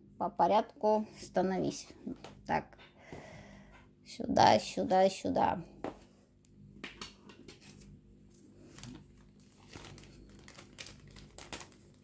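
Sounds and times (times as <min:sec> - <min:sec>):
plastic rustling and clicks: 0:08.7 - 0:12.0.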